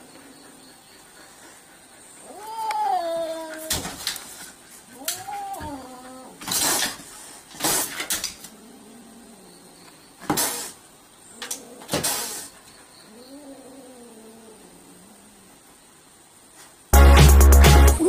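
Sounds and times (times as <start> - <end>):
kitten hissing: 10.3 - 10.8, 11.8 - 12.6.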